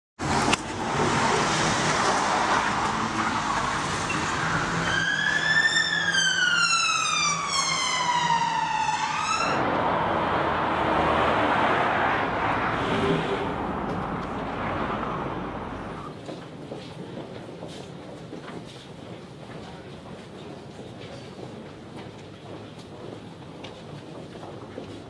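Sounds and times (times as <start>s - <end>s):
street traffic noise: 0.2s - 25.0s
police siren wailing: 3.1s - 9.7s.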